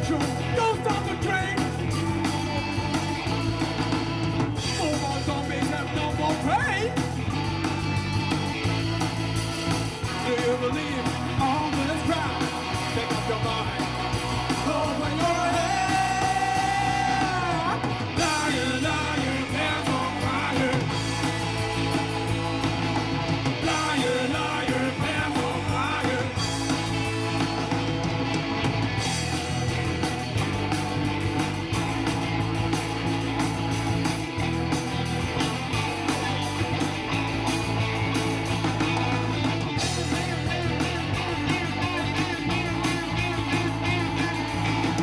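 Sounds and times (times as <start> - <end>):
man singing: 0.0 - 1.9, 4.6 - 7.0, 10.1 - 21.2, 23.6 - 26.7
live rock band playing: 0.0 - 45.0.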